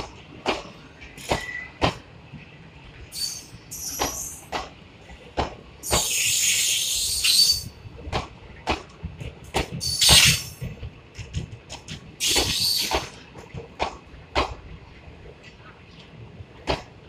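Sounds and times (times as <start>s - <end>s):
train wheels clattering: 0.0s - 2.1s, 3.2s - 14.7s, 15.4s - 17.0s
loud high hissing: 5.9s - 7.6s.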